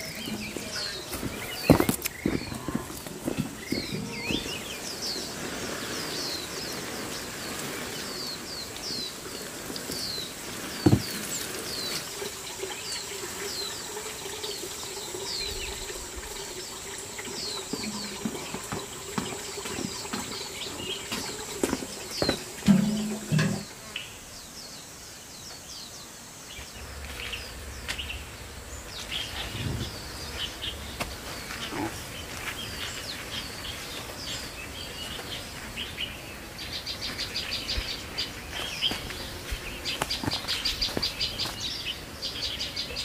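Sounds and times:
water sprinkling onto plants: 0:00.0 - 0:23.5, 0:36.6 - 0:42.6
small birds chirping: 0:00.0 - 0:43.0.

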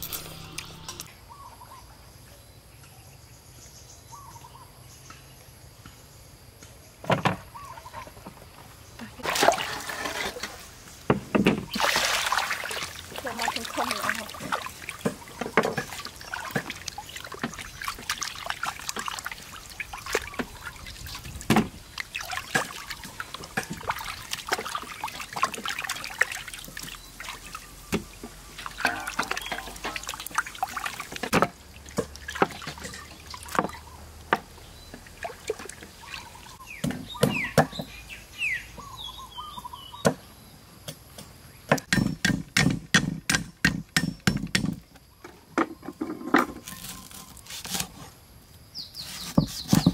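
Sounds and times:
water splashing and trickling: 0:09.0 - 0:38.4
cleaver chopping on wooden board: 0:41.7 - 0:44.8.

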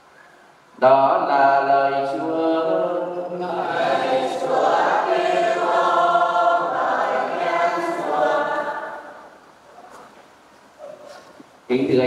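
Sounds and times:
choir singing: 0:03.4 - 0:09.4.

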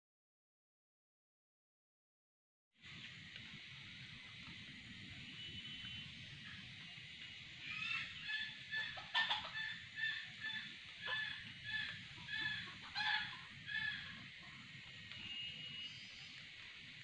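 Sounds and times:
junglefowl short high calls: 0:07.6 - 0:14.2.

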